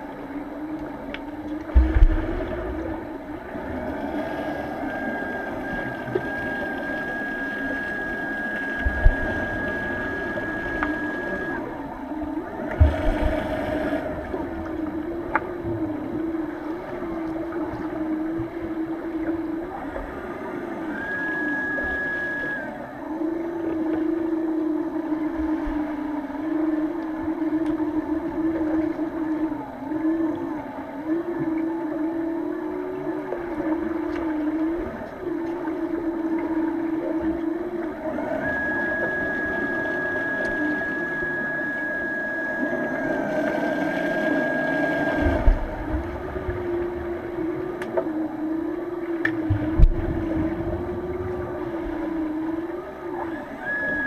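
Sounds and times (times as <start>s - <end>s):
low underwater drone: 0.0s - 54.0s
higher steady tone: 0.8s - 27.4s, 35.7s - 54.0s
low thumps: 1.7s - 3.8s.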